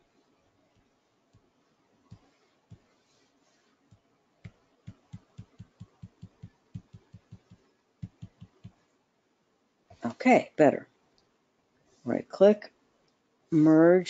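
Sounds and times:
computer mouse clicks: 4.9 - 8.8.

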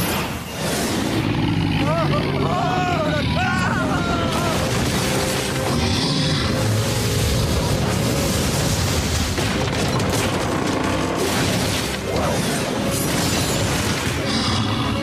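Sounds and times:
crashing debris: 4.1 - 6.0, 6.6 - 12.3.

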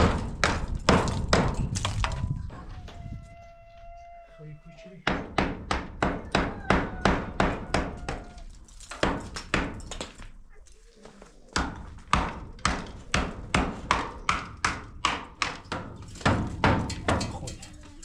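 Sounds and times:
hammer striking concrete: 0.0 - 2.3, 5.1 - 10.2, 11.5 - 17.6.

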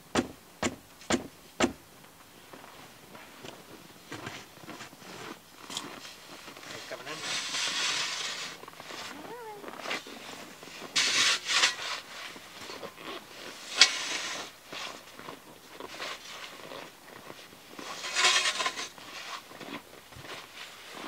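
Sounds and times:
snow shovel scraping snow: 4.2 - 21.0.

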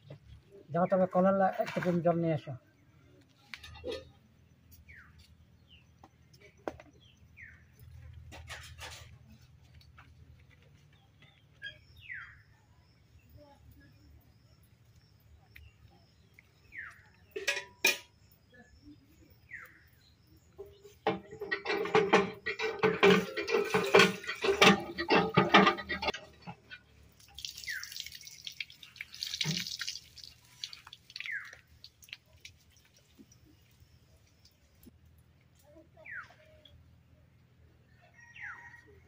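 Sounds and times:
hand pump metal knocks: 20.6 - 26.7
water gushing into steel bucket: 21.1 - 33.7
water splashing: 22.6 - 34.8.

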